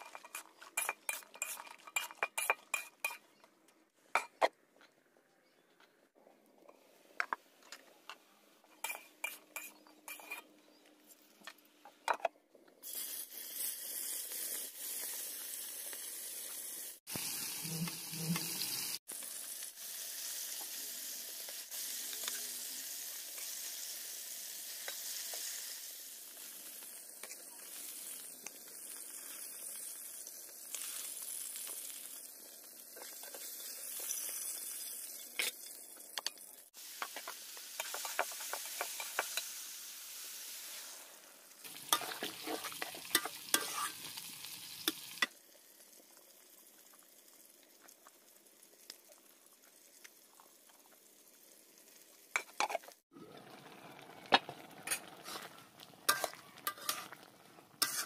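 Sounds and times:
metal spatula scraping pan: 8.8 - 10.5, 41.8 - 44.0, 54.8 - 57.2, 57.8 - 58.0
fish frying in hot oil: 12.8 - 58.0.

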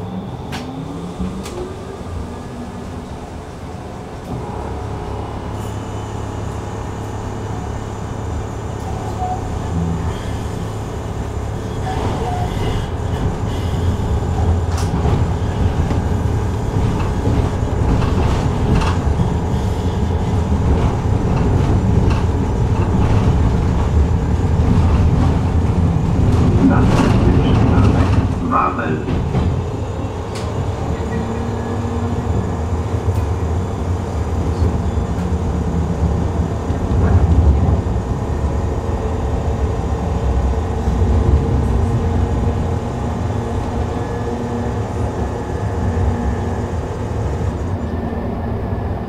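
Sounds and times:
tram rumble: 0.0 - 49.0
wheels clicking on rails: 11.8 - 33.4.

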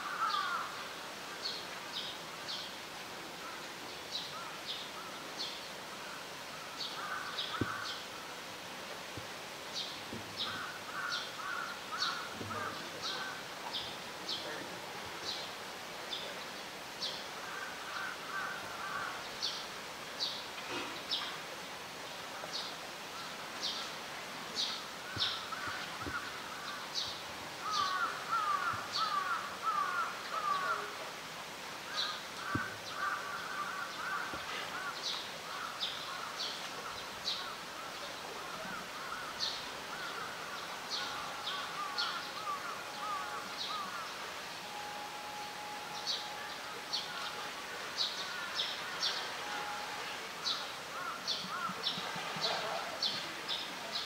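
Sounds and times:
birds chattering calls: 0.0 - 0.7, 4.4 - 8.1, 9.8 - 16.3, 17.0 - 19.6, 24.6 - 31.0, 31.9 - 54.0.

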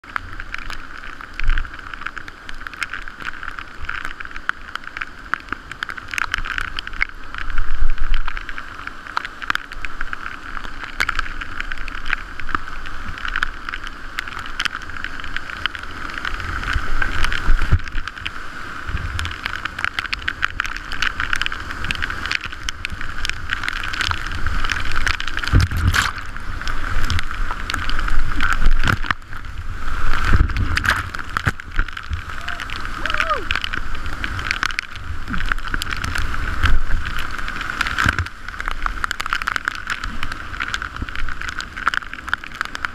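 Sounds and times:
rushing whitewater: 0.0 - 42.9
paddle blades splashing: 10.0 - 42.9.

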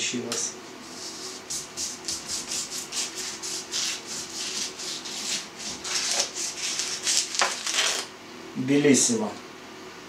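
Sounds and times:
knife sawing through meat: 0.9 - 8.1.

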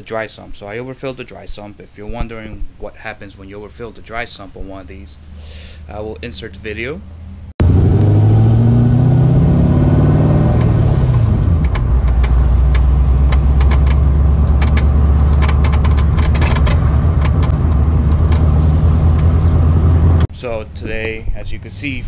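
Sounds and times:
car engine idling: 6.6 - 20.3
sharp metallic clunks: 10.5 - 18.5.

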